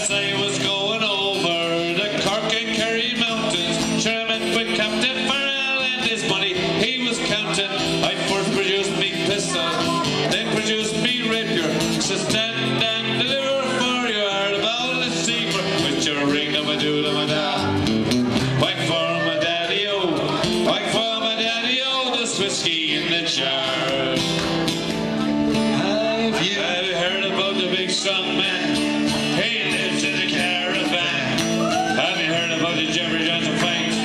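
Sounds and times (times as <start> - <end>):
strummed acoustic guitar: 0.0 - 34.0.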